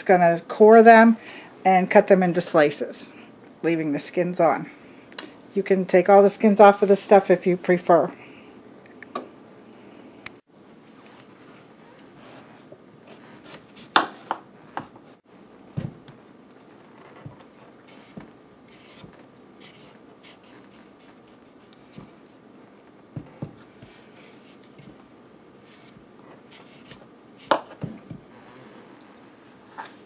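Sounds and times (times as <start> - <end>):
knife scraping sweet potato skin: 17.6 - 22.0, 25.6 - 27.6.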